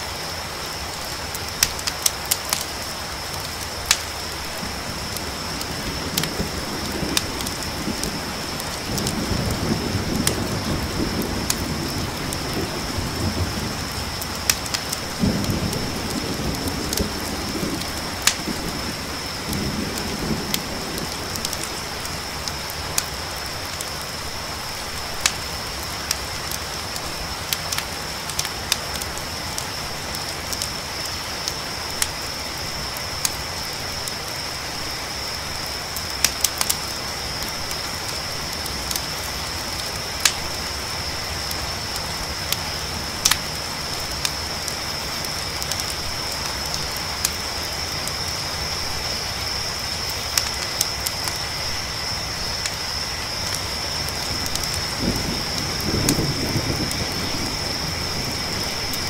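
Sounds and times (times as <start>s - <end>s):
crickets trilling: 0.0s - 59.0s
rain hiss: 0.0s - 59.0s
campfire crackling and popping: 0.1s - 59.0s
thunder rumble: 3.4s - 27.4s, 48.0s - 59.0s.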